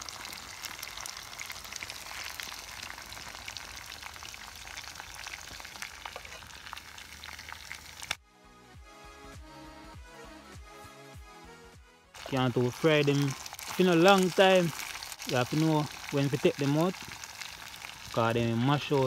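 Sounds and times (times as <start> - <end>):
fish frying in hot oil: 0.0 - 8.2, 12.2 - 19.0.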